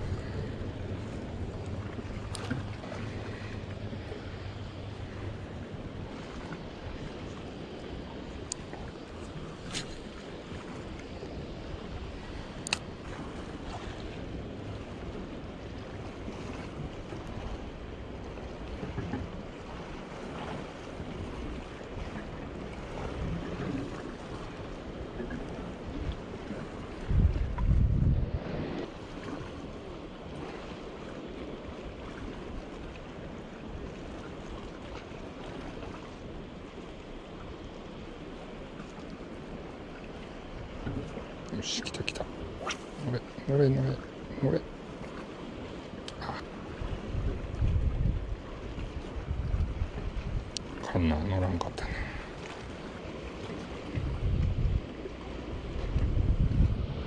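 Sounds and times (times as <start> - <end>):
wind buffeting microphone: 0.0 - 18.1, 18.7 - 29.6, 42.2 - 57.0
harbour water washing: 0.0 - 57.0
sharp click: 12.6 - 12.8.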